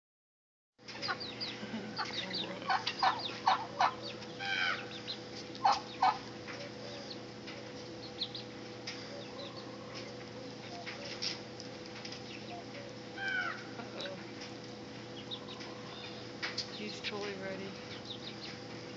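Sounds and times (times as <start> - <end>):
faint steady hum: 0.8 - 18.9
poultry clucking and calling: 0.9 - 11.4, 12.1 - 16.7.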